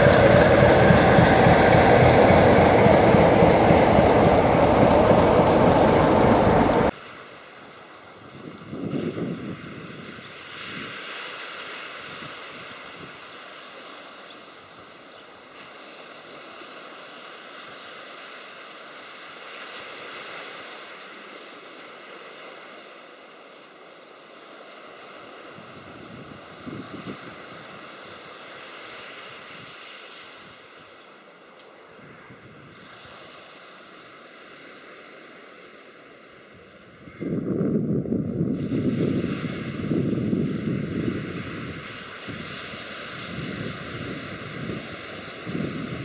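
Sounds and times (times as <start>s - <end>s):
distant diesel locomotive drone: 0.0s - 6.9s, 23.0s - 46.0s
wind on microphone: 0.0s - 6.9s, 36.9s - 46.0s.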